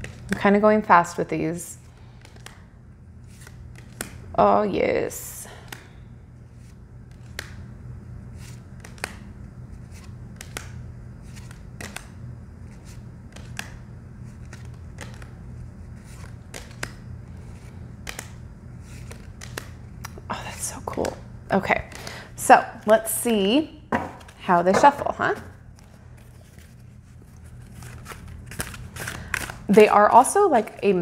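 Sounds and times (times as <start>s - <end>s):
cards tapping as laid down: 23.9s - 26.7s.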